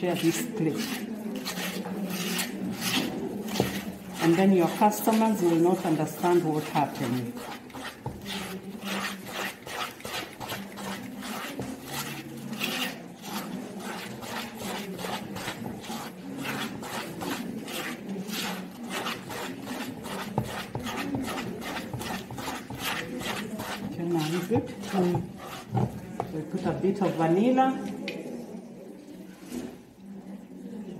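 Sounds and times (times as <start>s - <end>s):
whisk scraping plastic bowl: 0.0s - 27.6s.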